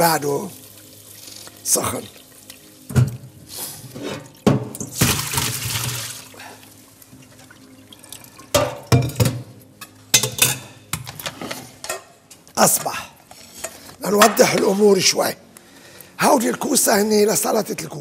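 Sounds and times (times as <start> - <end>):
water pouring into a metal sink: 3.9 - 6.6
water splashing from a tap: 4.3 - 6.4
pot clanking against sink: 8.5 - 9.5.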